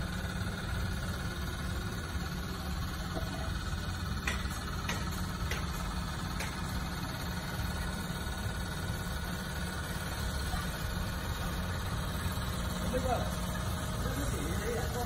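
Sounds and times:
low machine rumble: 0:00.0 - 0:15.0.

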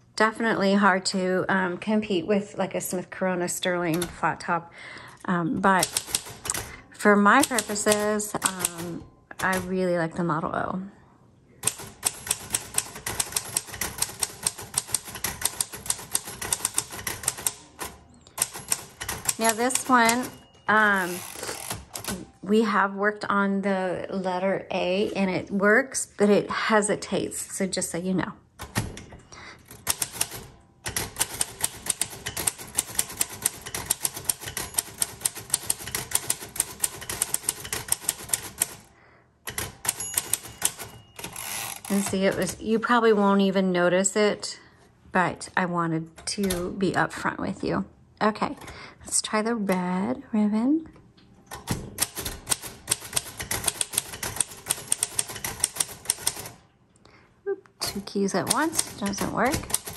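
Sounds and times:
typewriter typing: 0:05.7 - 0:09.8, 0:11.6 - 0:22.3, 0:29.6 - 0:38.9, 0:39.5 - 0:42.6, 0:51.5 - 0:56.6, 0:57.8 - 0:59.9.

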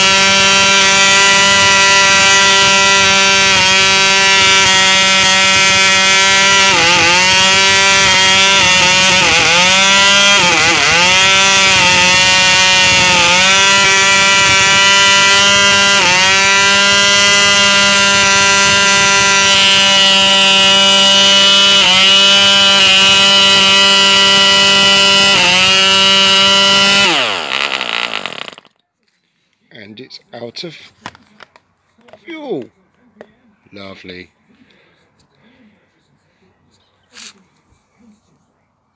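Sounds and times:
model engine high-pitched buzz: 0:00.0 - 0:28.7.

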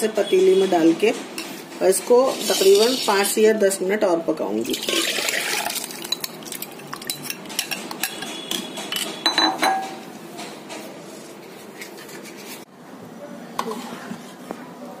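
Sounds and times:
thick mixture pouring: 0:04.7 - 0:06.8.

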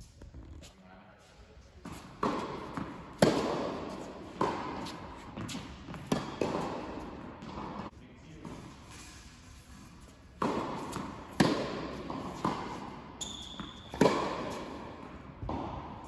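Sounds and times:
tennis ball struck and bouncing: 0:01.9 - 0:07.9, 0:10.4 - 0:16.0
shoe squeak: 0:13.2 - 0:14.0.

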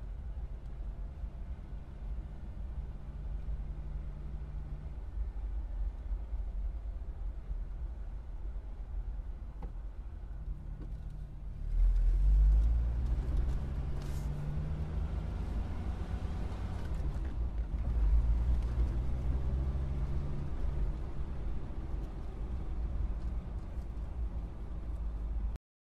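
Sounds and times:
car engine pulling away: 0:11.6 - 0:23.8.

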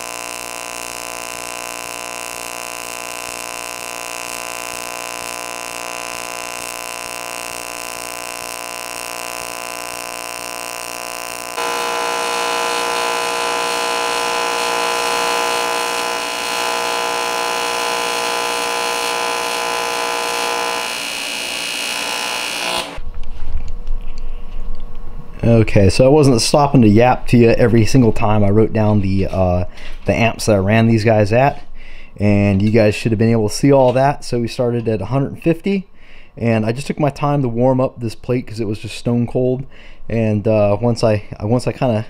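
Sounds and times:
welding arc buzzing: 0:00.0 - 0:23.0.

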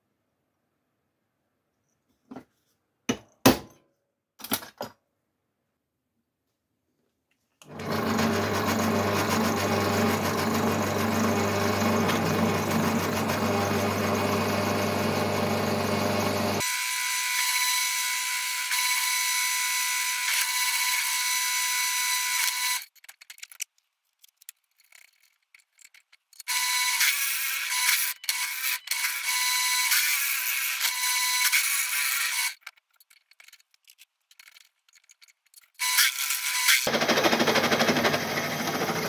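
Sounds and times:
pillar drill drilling steel: 0:07.7 - 0:22.8, 0:35.8 - 0:39.0.

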